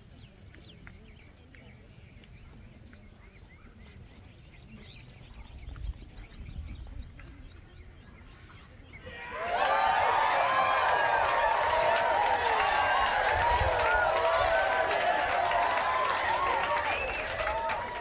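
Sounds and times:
small birds chirping: 0.0 - 9.4.

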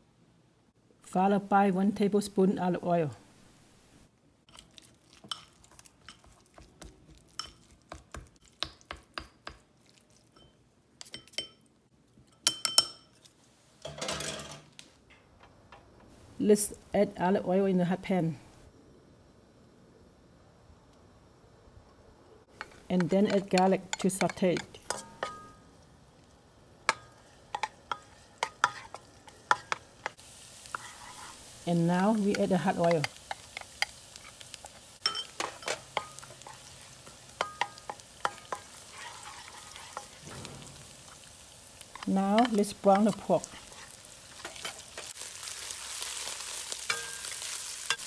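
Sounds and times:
spatula tapping and scraping wok: 5.2 - 9.7, 22.5 - 25.6, 26.8 - 31.5, 32.2 - 45.2, 46.5 - 48.0
faint oil sizzle: 22.4 - 48.0
chopstick clinking on glass bowl: 35.0 - 36.2, 46.9 - 47.3.

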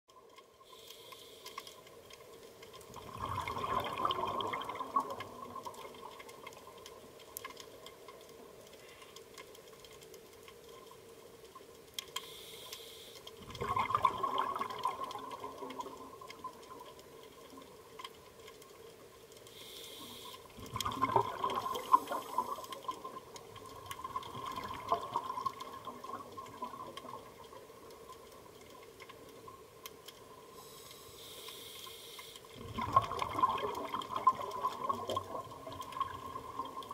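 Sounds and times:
faint steady hum: 0.1 - 36.9
regulator inhalation hiss: 0.7 - 1.7, 12.2 - 13.2, 19.5 - 20.4, 30.5 - 32.5
bubbling exhalation: 3.0 - 6.0, 13.4 - 16.0, 20.6 - 22.8, 32.6 - 36.9.

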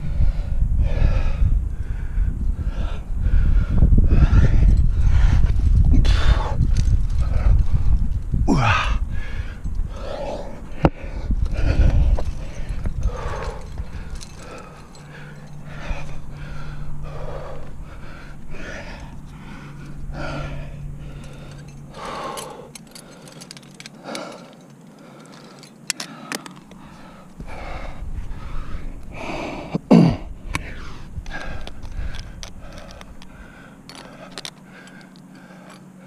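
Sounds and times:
heavy rhythmic breathing: 0.0 - 36.0
climbing gear clinking: 2.2 - 36.0
person grunting: 8.5 - 9.0, 29.6 - 30.3.

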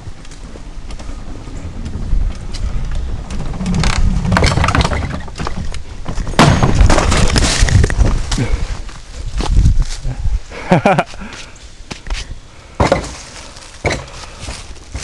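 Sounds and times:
mountain bike rattling over wooden slats: 0.5 - 8.6, 12.8 - 15.0
bike and rider crashing: 3.0 - 8.6
heavy knocks: 6.2 - 7.3, 12.8 - 13.2.

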